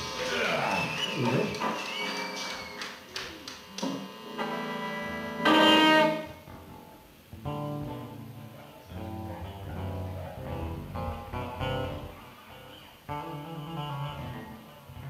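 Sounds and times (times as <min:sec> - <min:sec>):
band holding long notes: 0:03.6 - 0:15.0
electric guitar picking notes: 0:03.8 - 0:15.0.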